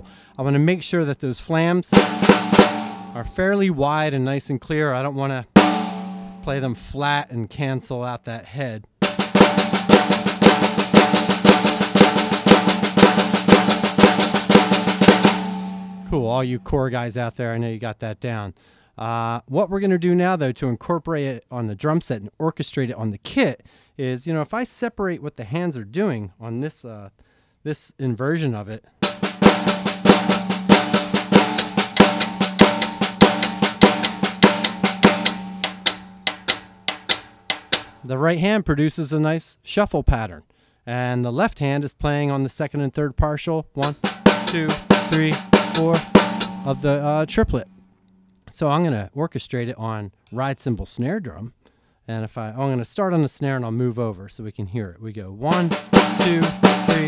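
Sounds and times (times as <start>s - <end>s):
snare drum rudiment with sticks: 1.9s - 3.5s, 5.6s - 6.7s, 9.0s - 16.3s, 29.0s - 38.1s, 43.8s - 47.8s, 55.5s - 57.0s.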